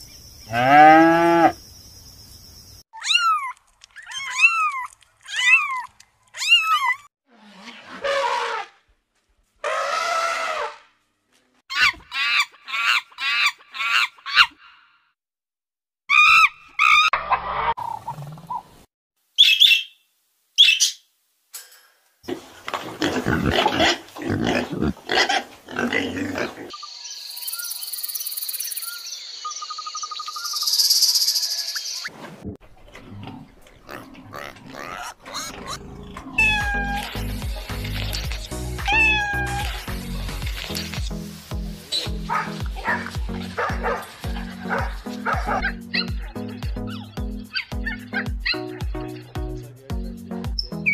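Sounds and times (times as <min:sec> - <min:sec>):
animal calls and cries: 0:03.0 - 0:08.8, 0:32.9 - 0:37.4, 0:38.0 - 0:40.0, 0:41.9 - 0:49.3.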